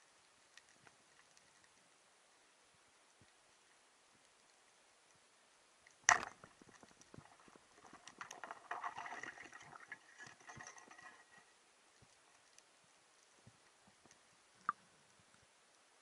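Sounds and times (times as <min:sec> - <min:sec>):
crackling and rattling: 0:06.0 - 0:11.6
speargun firing underwater: 0:06.1 - 0:06.6.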